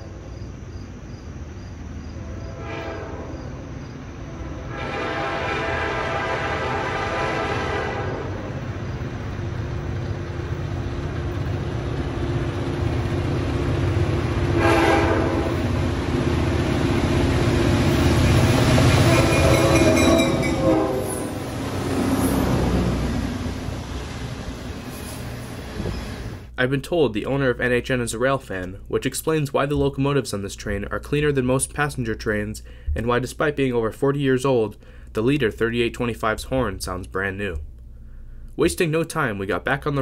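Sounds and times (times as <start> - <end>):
locomotive engines rumbling: 0.0 - 40.0
locomotive horn blasts: 2.2 - 3.4, 4.3 - 8.6, 14.5 - 15.7, 19.0 - 21.6
freight cars rolling by: 3.5 - 26.6.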